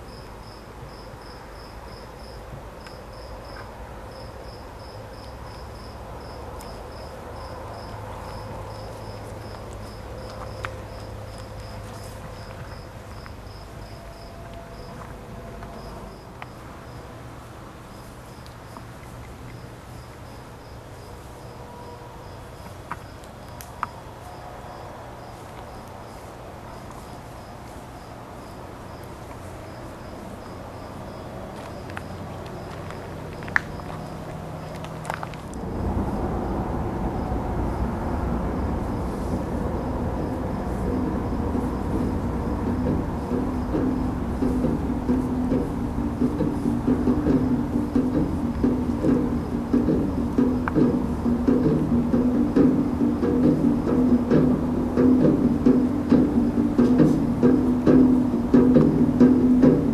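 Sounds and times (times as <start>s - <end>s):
crickets chirping: 0.0s - 59.9s
low rumble: 34.8s - 59.9s.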